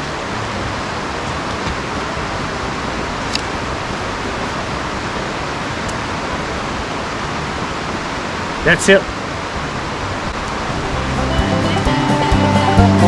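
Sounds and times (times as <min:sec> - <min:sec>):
steady rushing noise: 0:00.0 - 0:13.0.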